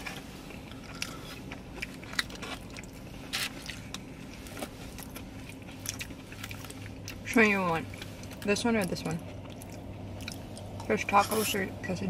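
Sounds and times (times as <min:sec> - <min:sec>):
biting and chewing food: 0:00.0 - 0:11.5.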